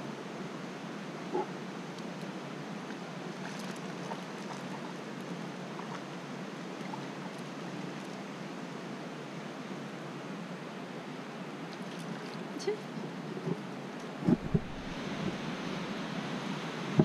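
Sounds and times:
stream running over rocks: 0.0 - 17.0.

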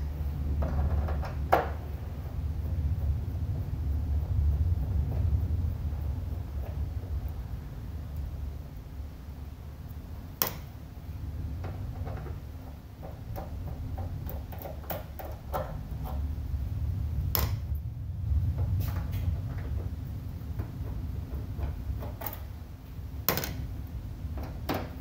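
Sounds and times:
steady low hum: 0.0 - 25.0
sharp knocks: 10.4 - 10.8.

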